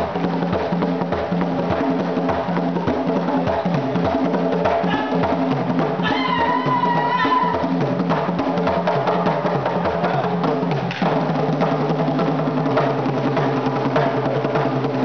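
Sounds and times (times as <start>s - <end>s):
percussion-driven dance music: 0.0s - 15.0s
high wavering call: 4.8s - 5.4s, 6.0s - 7.7s.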